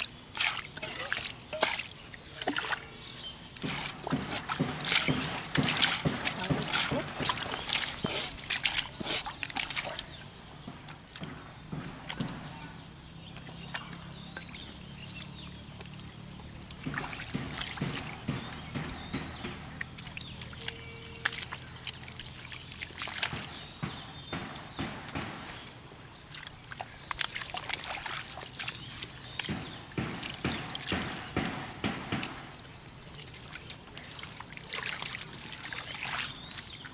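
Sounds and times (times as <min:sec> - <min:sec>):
squelching in wet mud: 0:00.0 - 0:36.9
water splashes: 0:00.0 - 0:36.9.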